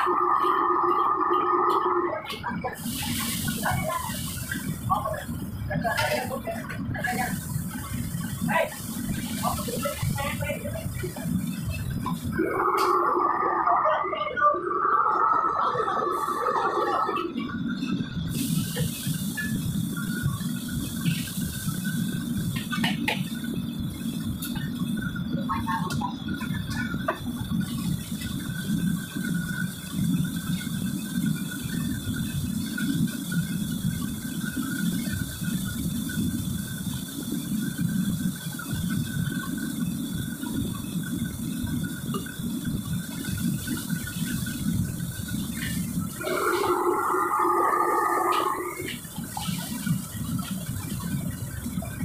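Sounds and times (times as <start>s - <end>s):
gas burners rushing: 0.0s - 52.0s
low steady rumble: 0.0s - 52.0s
water running from tap: 2.7s - 13.5s, 23.9s - 52.0s.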